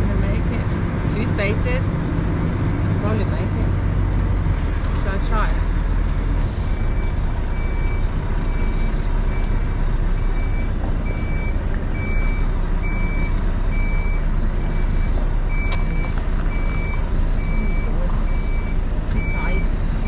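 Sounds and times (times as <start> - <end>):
diesel engine low rumble: 0.0 - 20.0
reversing alarm beeping: 6.5 - 20.0.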